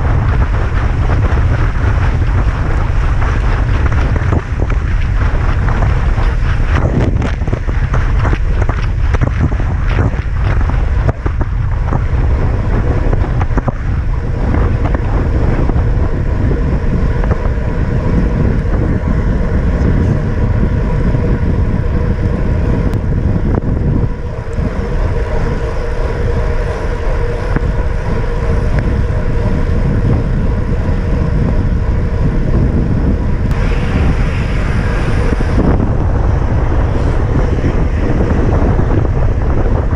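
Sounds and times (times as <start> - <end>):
wind buffeting microphone: 0.0 - 39.9.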